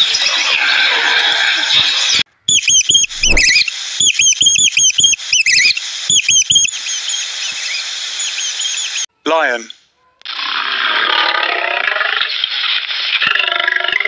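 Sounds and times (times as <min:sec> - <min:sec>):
rats squeaking: 0:02.5 - 0:07.0.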